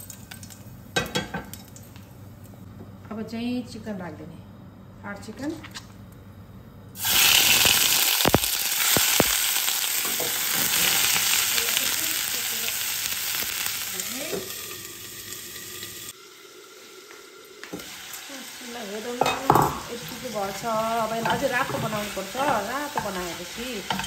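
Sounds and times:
chicken sizzling in hot fat: 7.0s - 24.0s.

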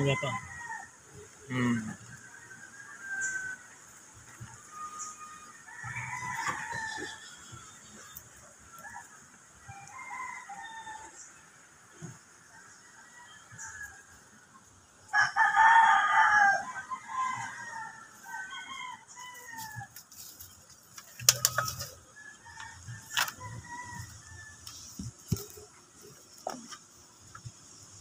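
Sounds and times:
rooster crowing: 0.0s - 1.0s, 1.6s - 3.8s, 4.6s - 7.7s, 8.8s - 11.2s, 15.1s - 19.9s, 21.3s - 25.0s.

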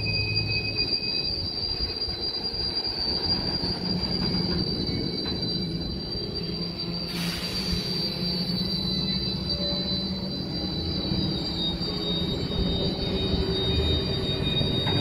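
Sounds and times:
high-pitched wheel squeal: 0.0s - 15.0s
train wheels rumbling on rails: 0.0s - 15.0s
short hiss: 7.1s - 8.0s.

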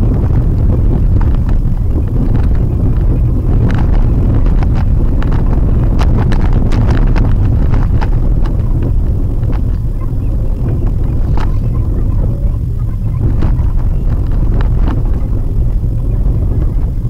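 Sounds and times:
clicks and knocks from rough road: 0.0s - 17.0s
low road rumble in car cabin: 0.0s - 17.0s.

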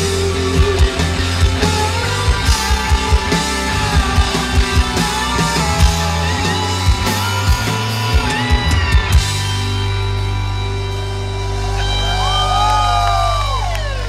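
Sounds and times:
live rock band: 0.0s - 14.0s.

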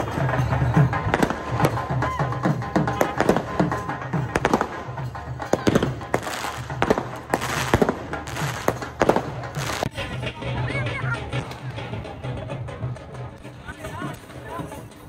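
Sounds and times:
firecrackers banging: 0.0s - 12.4s
music with drums: 0.0s - 15.0s.

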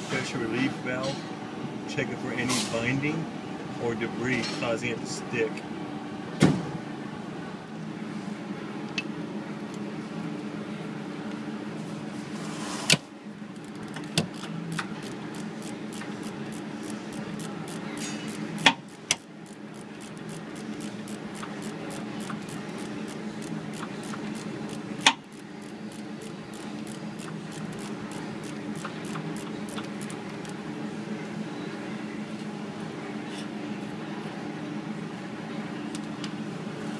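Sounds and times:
steady low hum: 0.0s - 36.9s
hand ratchet clicking: 13.6s - 30.6s.

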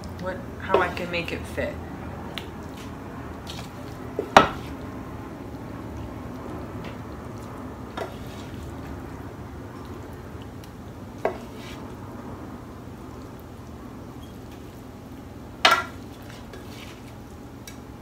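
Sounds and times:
oven fan noise: 0.0s - 18.0s.

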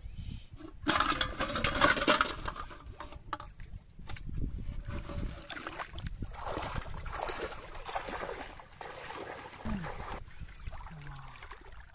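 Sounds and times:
fish thrashing in metal pot: 0.8s - 3.0s.

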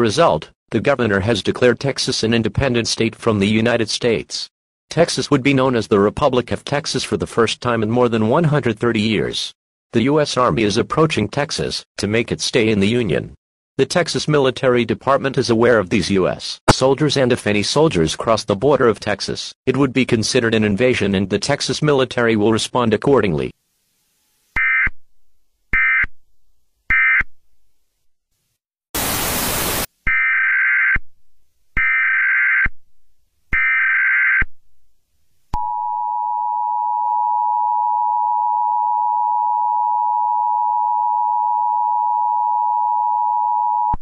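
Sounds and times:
loud static hiss: 29.0s - 29.9s.

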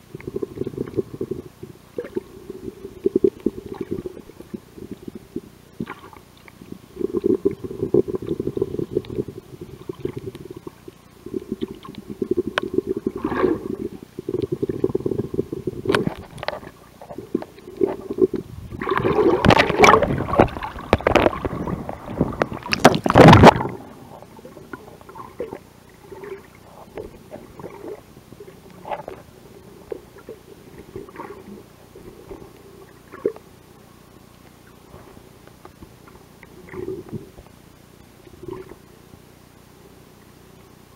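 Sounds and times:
splashing and bubbling water: 0.0s - 33.5s, 36.5s - 37.5s
muffled underwater movement: 0.0s - 40.9s
faint ticks: 34.2s - 34.8s, 35.4s - 39.2s.

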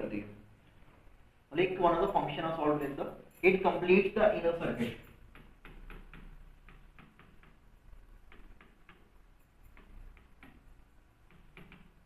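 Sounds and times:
pen tip tapping on screen: 5.2s - 12.0s.

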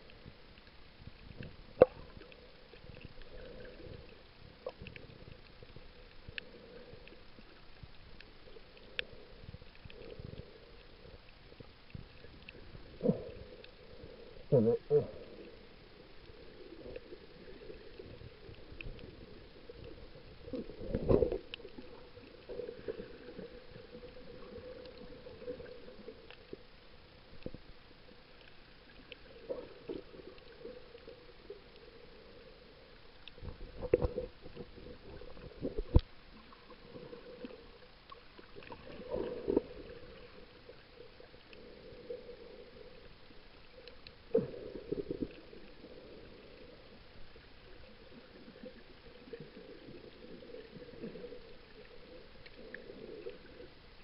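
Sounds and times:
faint underwater hum: 0.0s - 54.0s.

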